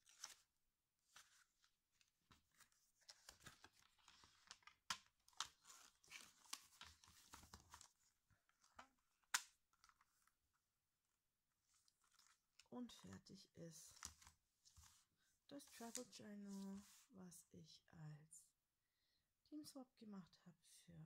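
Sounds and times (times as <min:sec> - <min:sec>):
paper rustling and crackling: 0:00.0 - 0:10.3, 0:11.7 - 0:12.7, 0:13.9 - 0:15.1.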